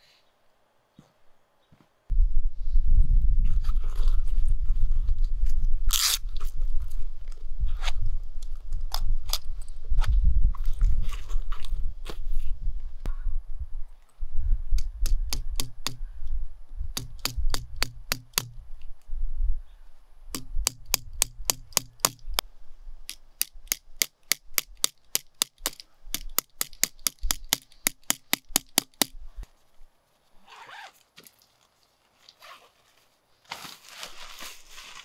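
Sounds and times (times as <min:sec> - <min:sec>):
hammer tapping tent stake: 0:17.0 - 0:18.6, 0:20.4 - 0:22.2
tent fabric rustling: 0:29.5 - 0:35.0.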